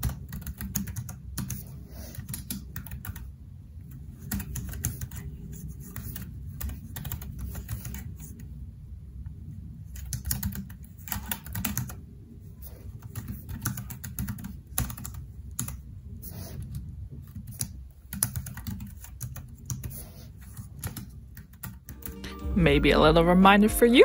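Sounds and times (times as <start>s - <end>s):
fast typing on keyboard: 0.0s - 3.3s, 3.9s - 8.3s, 9.9s - 12.0s, 12.9s - 15.9s, 16.6s - 22.1s.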